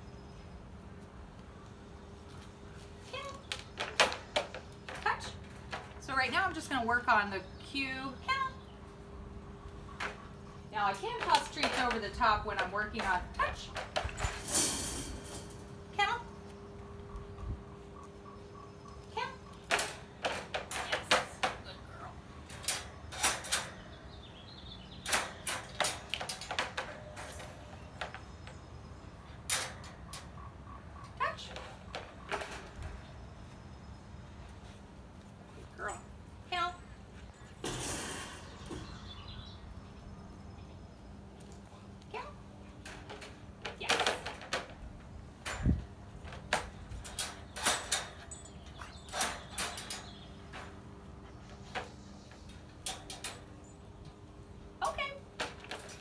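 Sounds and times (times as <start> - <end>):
metal crate door clicking and rattling: 9.9 - 15.7, 19.6 - 21.8, 22.4 - 24.0, 25.0 - 28.5, 29.3 - 30.4, 37.6 - 39.0, 42.8 - 51.0, 51.7 - 54.1, 55.3 - 56.0
crate door rattling and clicking: 42.8 - 50.9.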